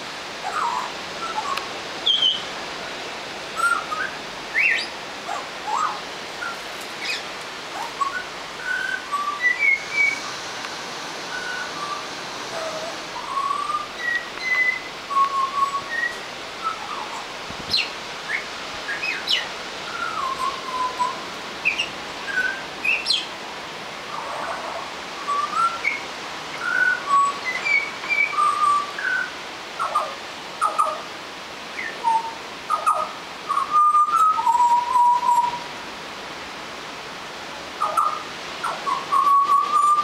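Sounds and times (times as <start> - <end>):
bird whistling song: 0.5 - 2.5, 3.6 - 4.9, 5.7 - 7.2, 7.8 - 10.3, 11.3 - 23.3, 25.2 - 26.0, 26.6 - 31.0, 31.7 - 35.7, 37.8 - 40.0.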